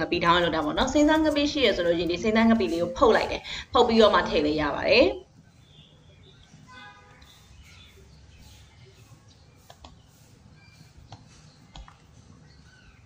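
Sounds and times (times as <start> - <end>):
faint bird chirps: 5.5 - 13.0.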